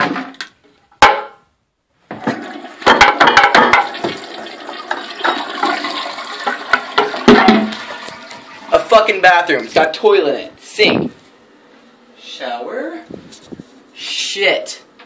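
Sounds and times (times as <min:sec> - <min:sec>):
toilet flushing: 0:02.2 - 0:09.7.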